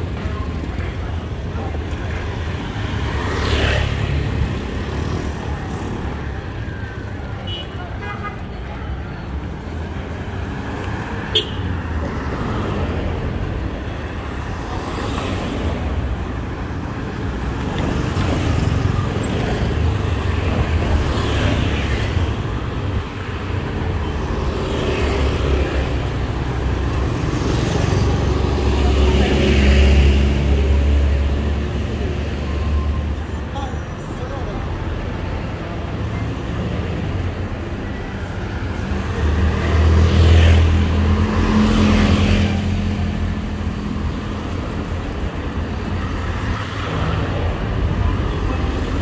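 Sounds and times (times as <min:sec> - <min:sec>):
people's voices: 0:00.0 - 0:14.8, 0:25.0 - 0:49.0
traffic passing: 0:00.0 - 0:49.0.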